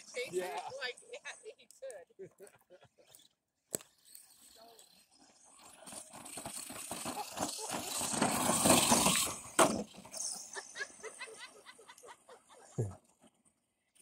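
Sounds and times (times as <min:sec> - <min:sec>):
rc truck motor: 0:03.1 - 0:12.1
tyres on loose stones: 0:03.7 - 0:10.7.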